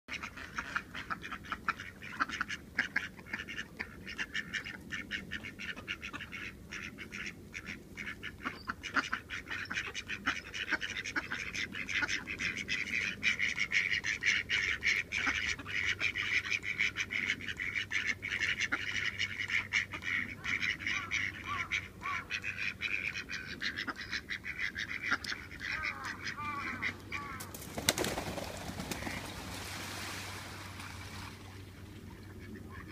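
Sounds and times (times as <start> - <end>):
ducks quacking: 0.1 - 29.6, 32.0 - 32.9
wings flapping: 27.4 - 31.4.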